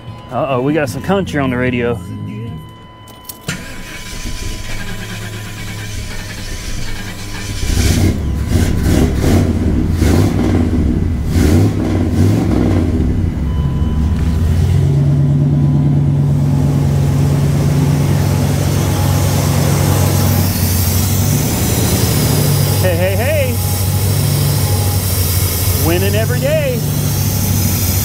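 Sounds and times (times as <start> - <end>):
engine starting and idling: 3.2 - 28.0.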